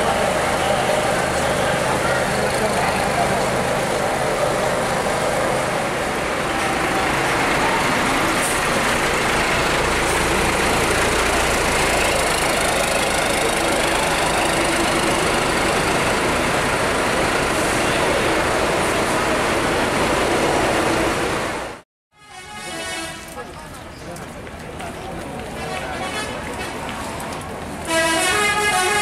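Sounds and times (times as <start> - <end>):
diesel coach engine running: 0.0 - 21.8.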